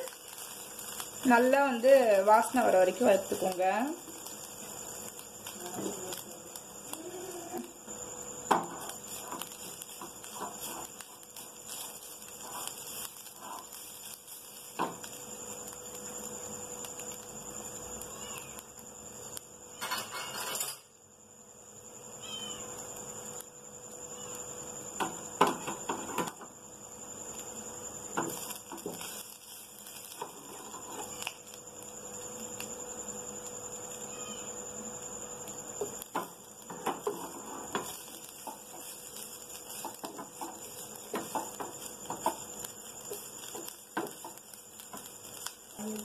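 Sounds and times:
spatula scraping frying pan: 8.5s - 14.0s, 30.0s - 31.2s, 36.7s - 42.4s.

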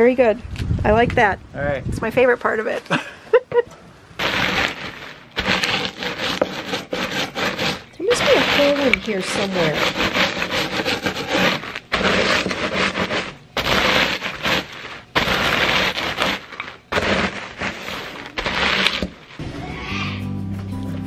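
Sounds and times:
crackers crunching in plastic bag: 4.2s - 19.4s
rolling pin rolling: 4.2s - 19.4s.

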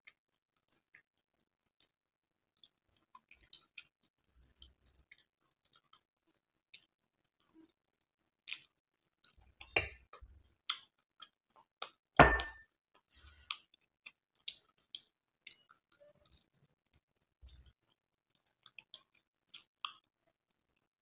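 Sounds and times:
taps on glass bowls: 9.8s - 10.0s, 12.2s - 12.6s
ringing glass clink: 12.2s - 12.6s.

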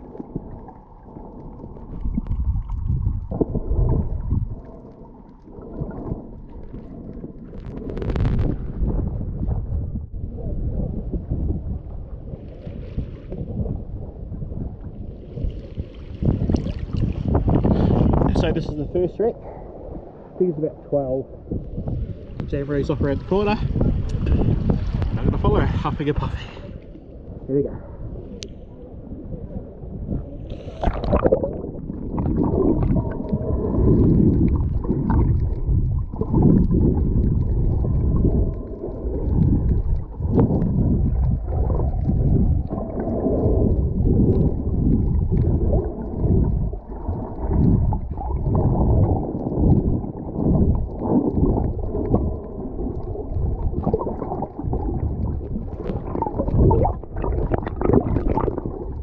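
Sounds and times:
underwater surging and rumbling: 0.0s - 59.0s
water splash: 15.2s - 18.4s, 30.4s - 59.0s.

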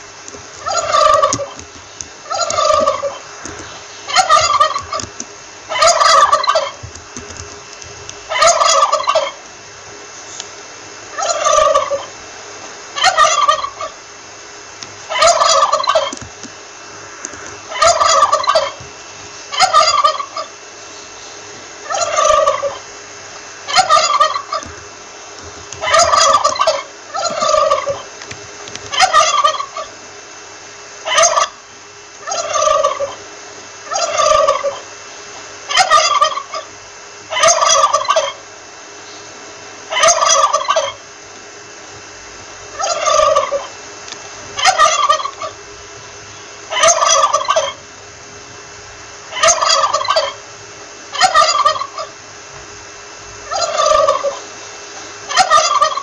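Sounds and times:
turkey gobbling: 0.5s - 7.3s, 8.3s - 9.5s, 11.1s - 12.2s, 12.9s - 14.0s, 15.0s - 16.5s, 17.5s - 20.6s, 21.8s - 22.9s, 23.6s - 24.8s, 25.4s - 28.1s, 28.8s - 30.0s, 31.0s - 34.9s, 35.6s - 38.4s, 39.9s - 41.0s, 42.7s - 45.7s, 46.3s - 47.9s, 49.3s - 52.2s, 53.4s - 56.0s.

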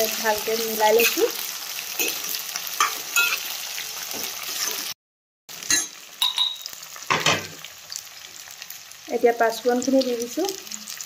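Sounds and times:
food sizzling in hot oil: 0.0s - 11.0s
spatula scraping and clinking pan: 2.0s - 3.5s, 5.7s - 7.4s.

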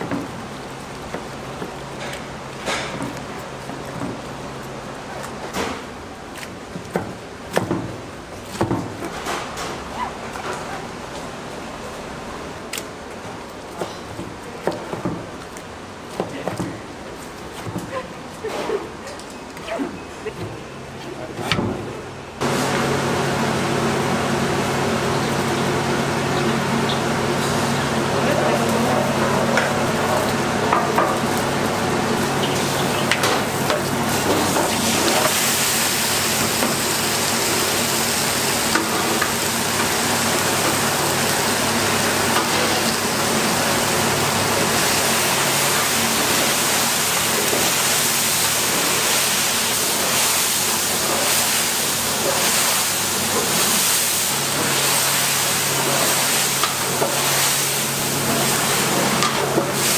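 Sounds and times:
food sizzling in a wok: 29.4s - 59.9s.

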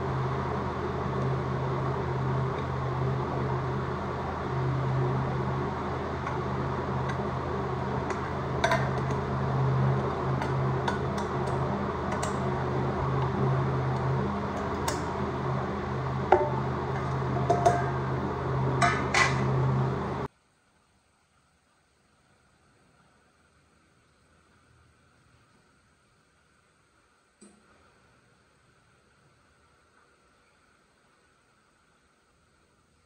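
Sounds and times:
steady hum: 0.0s - 33.0s
metal containers clinking: 16.3s - 18.0s.

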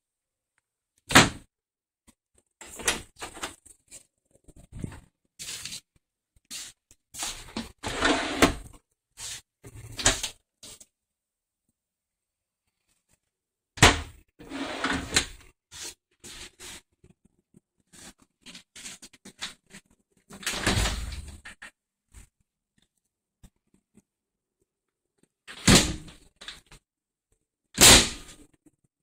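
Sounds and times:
wooden cabinet doors opening and shutting: 2.6s - 3.5s, 7.5s - 8.7s, 13.8s - 15.4s, 20.4s - 21.4s.

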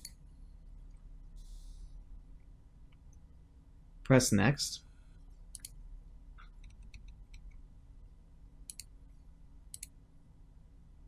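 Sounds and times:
low steady hum: 0.0s - 11.0s
computer mouse clicking: 5.5s - 5.8s, 6.4s - 7.6s, 8.6s - 8.9s, 9.7s - 10.0s.

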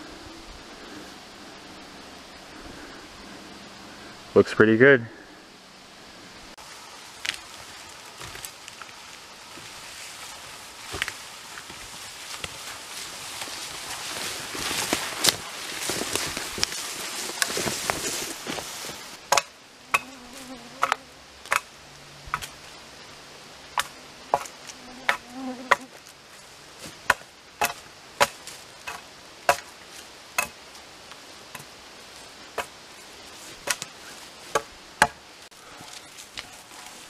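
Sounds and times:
insect buzzing: 5.2s - 35.5s
hatchet chopping wood: 19.3s - 20.1s, 20.8s - 21.7s, 23.8s - 24.5s, 27.1s - 29.7s, 30.4s - 30.6s, 33.6s - 33.9s, 34.5s - 35.2s.

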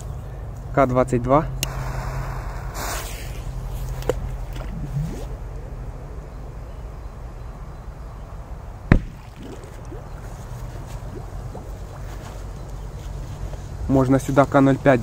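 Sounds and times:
underwater firecracker bang: 8.9s - 9.7s.

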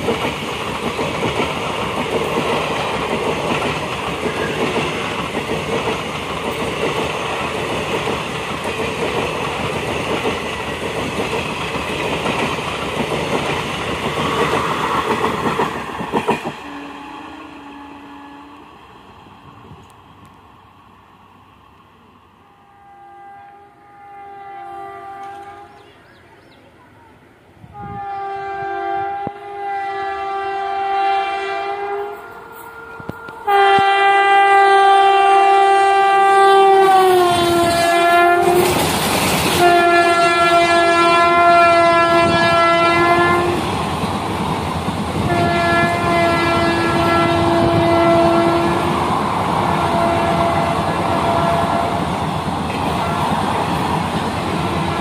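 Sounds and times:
train wheels clattering on rails: 0.0s - 16.7s, 37.2s - 41.1s, 41.8s - 55.0s
train passing with loud rush: 0.0s - 55.0s
locomotive horn blasts: 16.6s - 18.6s, 22.5s - 25.9s, 27.7s - 38.7s, 39.6s - 43.6s, 45.2s - 49.0s, 49.7s - 52.0s.

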